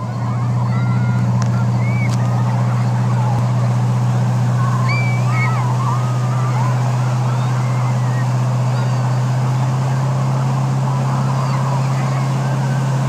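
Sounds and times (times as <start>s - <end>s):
motorboat engine drone: 0.0s - 13.0s
rush of boat wake: 0.0s - 13.0s
faint high wavering calls: 4.5s - 13.0s.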